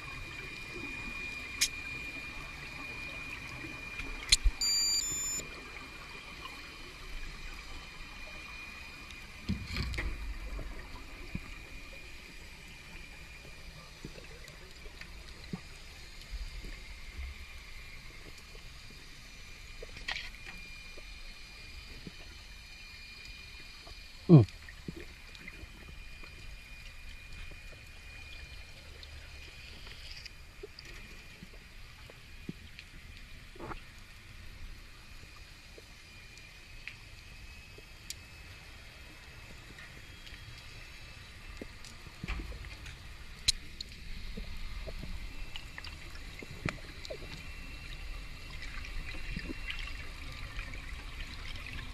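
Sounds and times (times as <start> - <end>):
water gurgle: 0.0 - 51.9
faint clicks and crackles: 0.3 - 51.9
faint steady high tone: 4.3 - 5.6.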